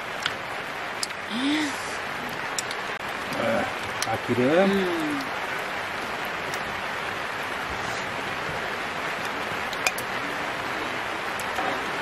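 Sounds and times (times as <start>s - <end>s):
rain hissing: 0.0s - 12.0s
meat sizzling on a griddle: 3.3s - 5.3s.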